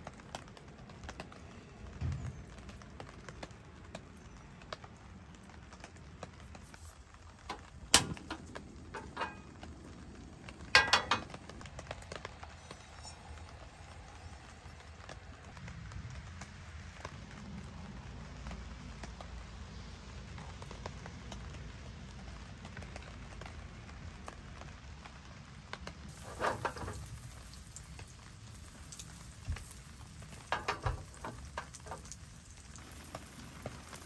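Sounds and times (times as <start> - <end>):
faint rain patter: 0.0 - 34.0
stove igniter click: 7.5 - 9.5
kitchenware clattering: 7.5 - 9.6, 10.7 - 11.5, 26.1 - 27.9, 28.5 - 32.2.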